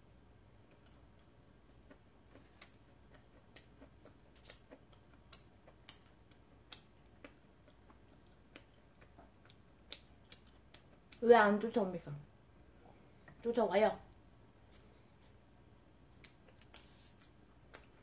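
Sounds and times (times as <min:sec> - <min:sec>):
mouth clicks while chewing: 0:00.7 - 0:11.2, 0:16.2 - 0:18.0.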